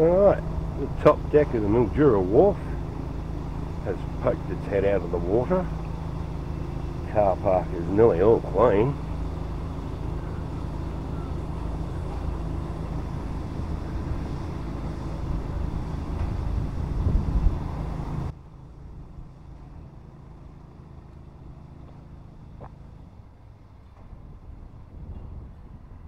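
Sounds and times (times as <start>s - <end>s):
low engine hum: 0.0s - 26.0s
wind rumble on microphone: 7.0s - 19.4s, 23.8s - 26.0s.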